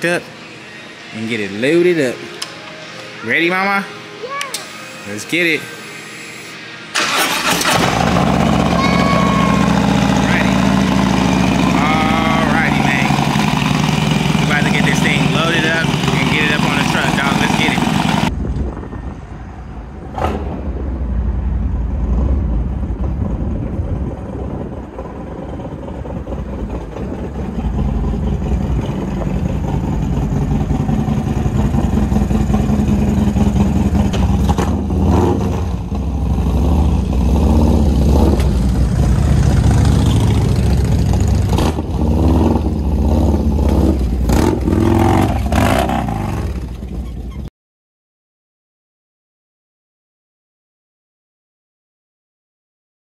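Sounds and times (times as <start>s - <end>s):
motorcycle engine revving: 7.0s - 18.3s, 25.8s - 47.1s
motorcycle engine rumbling: 7.0s - 47.5s.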